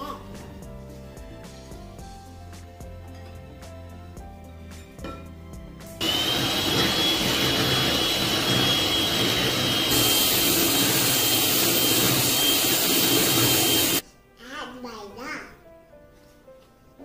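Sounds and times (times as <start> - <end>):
electric hand mixer whining: 6.0 - 14.0.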